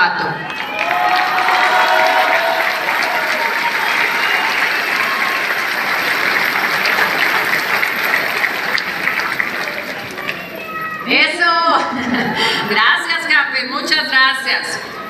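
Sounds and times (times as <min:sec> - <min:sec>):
audience applauding: 0:00.3 - 0:11.1.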